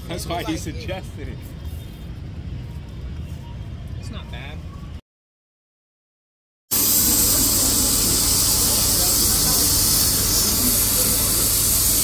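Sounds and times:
train interior hiss and rumble: 0:06.7 - 0:12.0.

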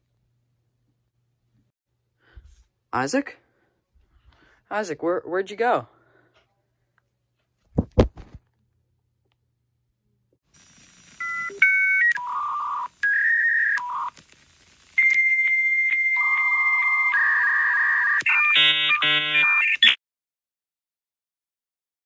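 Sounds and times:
thump: 0:07.8 - 0:08.4.

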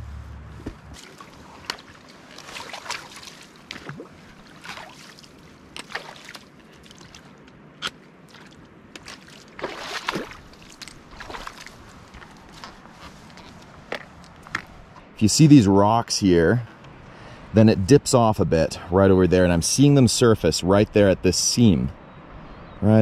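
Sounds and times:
footsteps splashing through water: 0:00.7 - 0:14.2.

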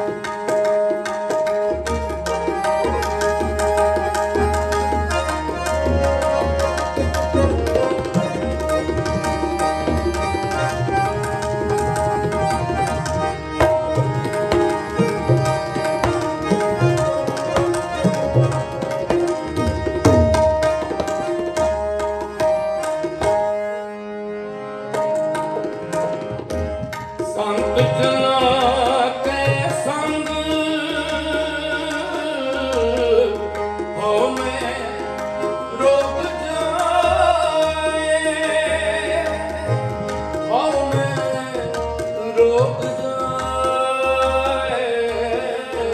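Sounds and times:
harmonium: 0:00.0 - 0:45.9
tabla playing: 0:00.0 - 0:45.9
man singing: 0:27.3 - 0:45.9.

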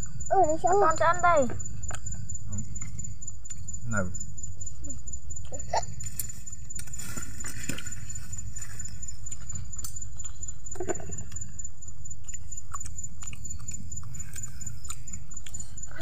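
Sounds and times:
chewing raw greens: 0:05.4 - 0:16.0.

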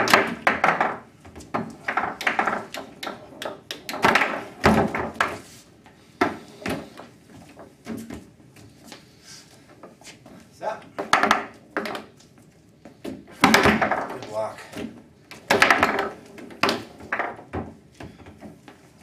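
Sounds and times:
foosball ball clacking: 0:00.0 - 0:05.4, 0:11.0 - 0:12.2, 0:13.4 - 0:14.2, 0:15.3 - 0:17.8
foosball rods knocking: 0:00.0 - 0:05.5, 0:10.9 - 0:12.2, 0:13.0 - 0:18.6.

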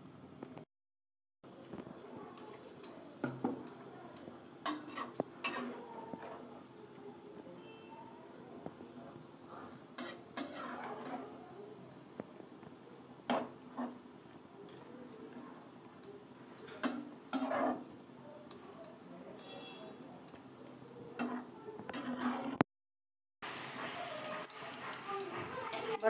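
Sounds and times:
spatula scraping pan: 0:04.2 - 0:06.6, 0:09.7 - 0:11.4, 0:13.3 - 0:14.0, 0:16.7 - 0:18.0, 0:21.2 - 0:22.6.

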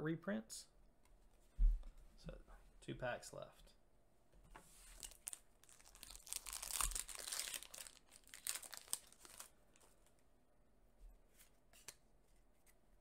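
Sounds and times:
cards handling noise: 0:04.6 - 0:10.2, 0:11.3 - 0:12.8
foil wrapper tearing and crinkling: 0:05.0 - 0:09.5.

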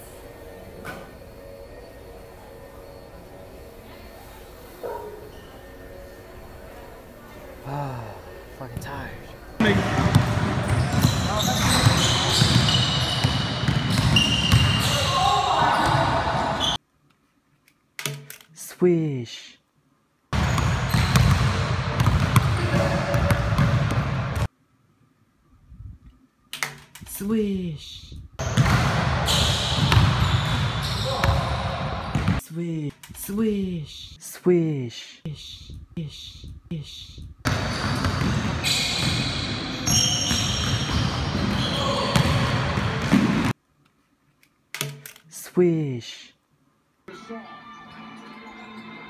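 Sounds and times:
loud gym noise: 0:05.2 - 0:16.8, 0:28.4 - 0:32.4, 0:37.4 - 0:43.5
basketball bouncing on court: 0:09.6 - 0:15.2, 0:20.4 - 0:24.5, 0:28.4 - 0:32.4, 0:37.4 - 0:43.5
basketball bouncing on wooden floor: 0:09.8 - 0:14.8, 0:20.4 - 0:24.2
basketball hitting the hoop: 0:20.4 - 0:24.4, 0:28.4 - 0:32.4.

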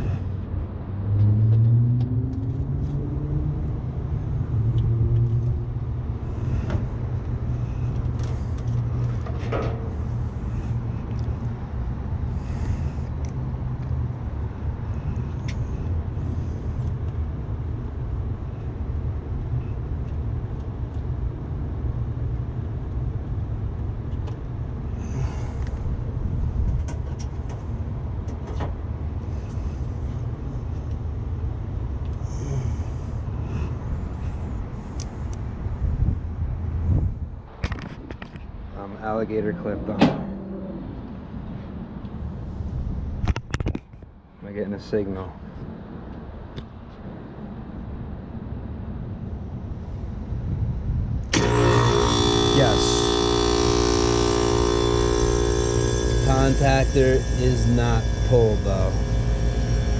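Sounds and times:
low rumble: 0:38.5 - 0:43.2
rising tone: 0:39.4 - 0:41.6, 0:51.4 - 0:59.9.

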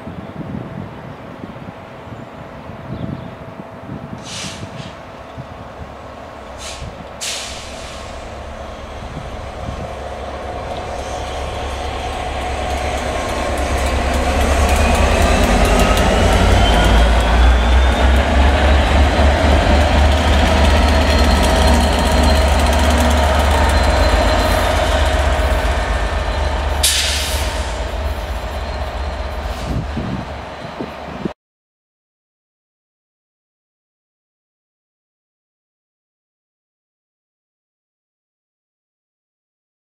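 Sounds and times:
diesel locomotive engine rumble: 0:00.1 - 0:31.3
train wheels on rails: 0:06.4 - 0:31.3.

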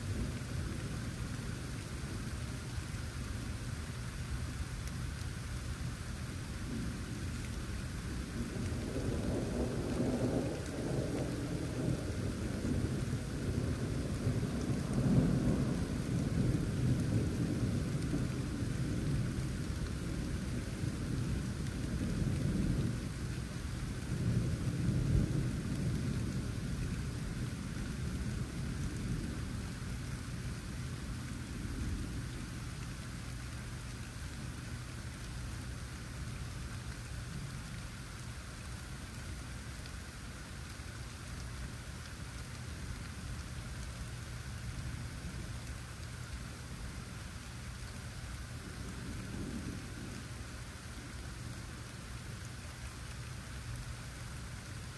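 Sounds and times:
steady rain falling: 0:00.0 - 0:54.9
thunder rumbling: 0:06.6 - 0:33.1, 0:48.5 - 0:51.9.

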